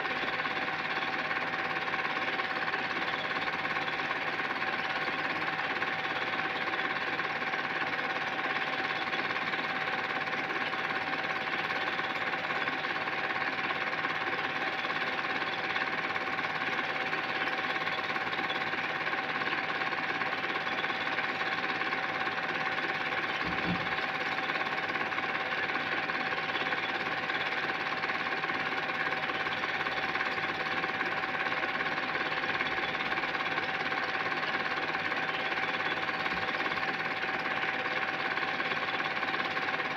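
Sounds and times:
film projector clatter: 0.0s - 39.9s
projector motor hum: 0.0s - 39.9s.

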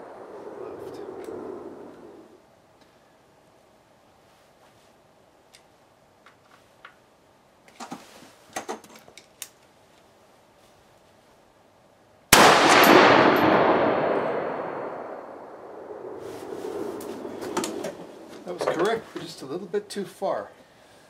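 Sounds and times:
rifle shot with long echo: 0.0s - 2.2s, 12.3s - 18.5s.

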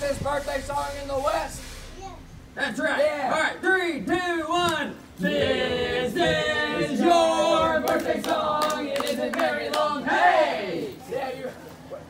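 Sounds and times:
men singing together: 5.2s - 10.2s.

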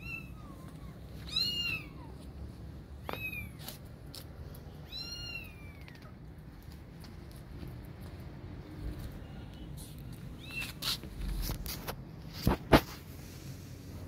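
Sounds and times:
cat meowing: 0.0s - 2.2s, 4.8s - 6.1s.

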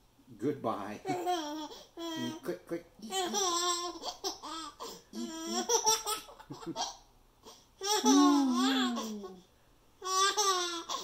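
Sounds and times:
baby laughing: 1.1s - 2.4s, 3.0s - 7.0s, 7.8s - 9.4s, 10.0s - 11.0s.

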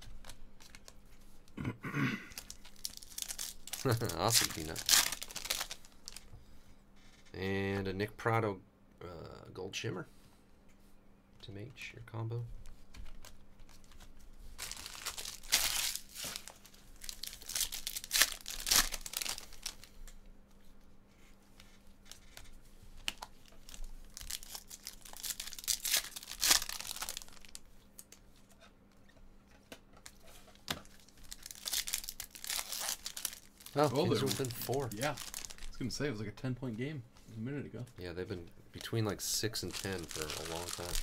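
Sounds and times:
foil wrappers crinkling and tearing: 0.1s - 1.0s, 2.3s - 6.3s, 12.7s - 20.0s, 21.6s - 28.2s, 30.0s - 35.8s, 38.8s - 41.0s.

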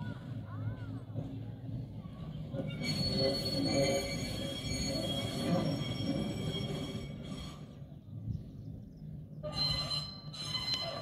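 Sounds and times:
tram rolling rumble: 0.0s - 11.0s
wheel squeal: 2.4s - 7.9s, 9.4s - 11.0s.

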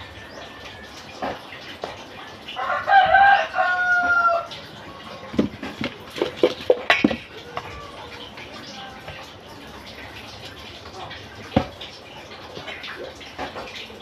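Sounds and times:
rooster crowing: 2.6s - 4.6s.

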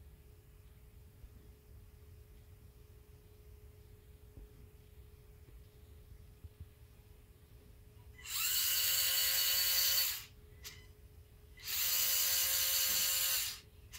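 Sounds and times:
electric motor whining: 8.2s - 10.3s, 11.6s - 13.6s.

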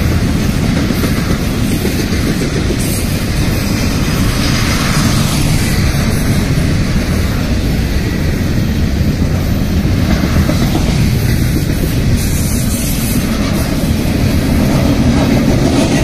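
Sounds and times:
freight train rolling past: 0.0s - 16.0s.

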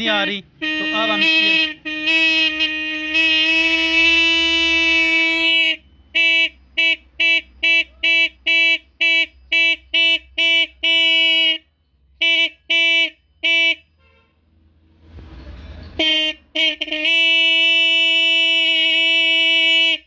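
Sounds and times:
electric horn blasts and beeps: 0.1s - 11.6s, 16.0s - 20.0s.

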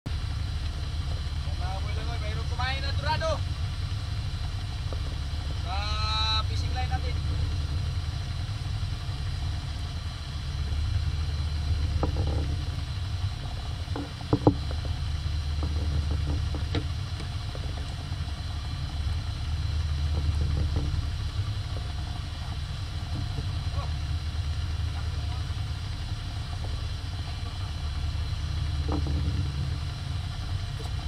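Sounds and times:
boat engine droning: 0.1s - 31.0s
knocks on boat: 13.9s - 14.9s, 15.6s - 17.8s, 20.1s - 21.1s, 28.8s - 29.6s.

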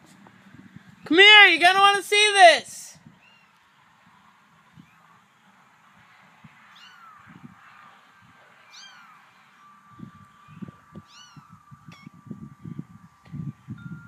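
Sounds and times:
kittens mewing: 6.7s - 7.4s, 8.7s - 9.3s, 10.5s - 12.1s.

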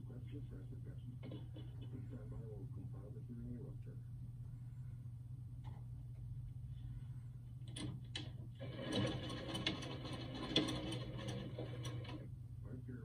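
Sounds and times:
sewing machine clicks: 7.7s - 12.3s
sewing machine stitching: 8.6s - 12.3s.

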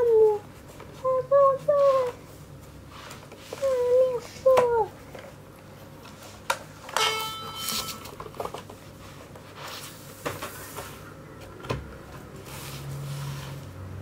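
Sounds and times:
clicks and knocks of handled objects: 6.4s - 8.8s
metallic ringing clink: 7.0s - 8.1s.

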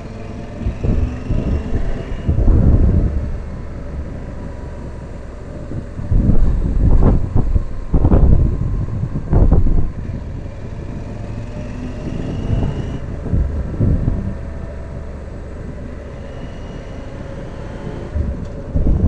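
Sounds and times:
faint rising whine: 0.0s - 19.0s
motorcycle engine rumble: 0.0s - 19.0s
wind noise on microphone: 0.0s - 19.0s.

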